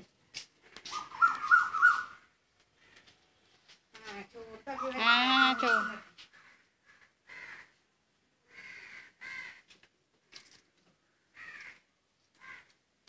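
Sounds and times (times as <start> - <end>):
crow cawing faintly: 0.9 - 3.4, 5.6 - 7.8, 8.4 - 9.8, 10.9 - 12.8.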